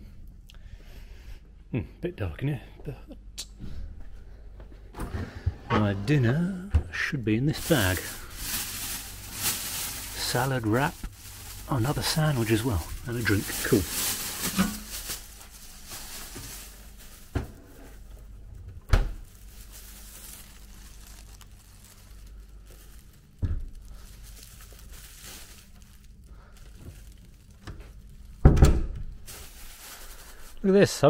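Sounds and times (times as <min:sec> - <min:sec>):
low steady hum: 0:00.0 - 0:31.0
plastic bag rustling: 0:07.0 - 0:31.0.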